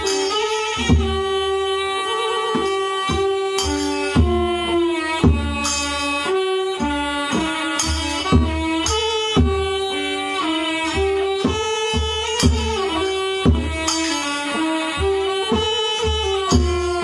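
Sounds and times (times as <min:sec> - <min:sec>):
small cymbals shimmering: 0:00.0 - 0:04.8, 0:10.4 - 0:17.0
bowed fiddle melody: 0:00.0 - 0:17.0
hand drum strokes: 0:00.0 - 0:17.0.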